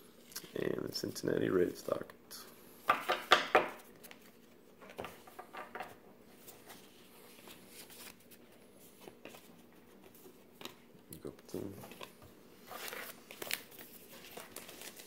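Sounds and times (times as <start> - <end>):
cards rustling: 6.4 - 10.8, 11.8 - 15.0.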